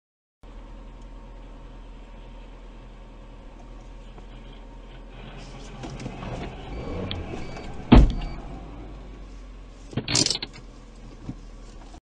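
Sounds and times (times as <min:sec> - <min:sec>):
low vehicle hum: 0:00.4 - 0:12.0
car scraping noise: 0:03.9 - 0:12.0
loud bang: 0:06.8 - 0:08.5.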